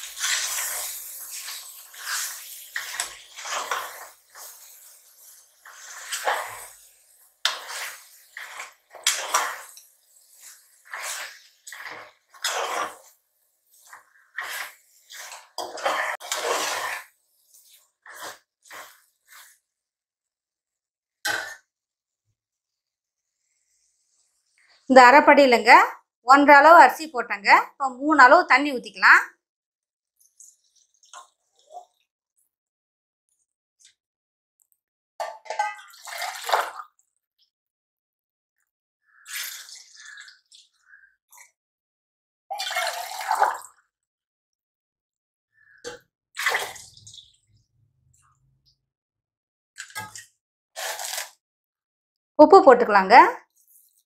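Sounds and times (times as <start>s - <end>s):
ladle scraping a pot: 0.0s - 6.9s, 7.5s - 13.2s, 13.8s - 19.6s, 35.2s - 36.6s
water pouring and splashing: 0.0s - 19.6s, 30.1s - 32.1s, 35.2s - 37.5s, 39.1s - 41.5s, 42.5s - 43.9s, 45.9s - 48.2s, 49.8s - 51.4s.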